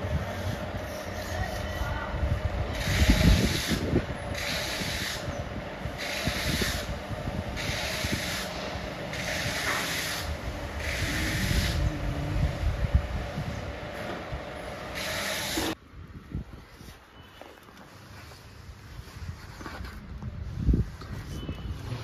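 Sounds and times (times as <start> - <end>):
steady low rumble: 0.0 - 4.4, 10.3 - 14.9.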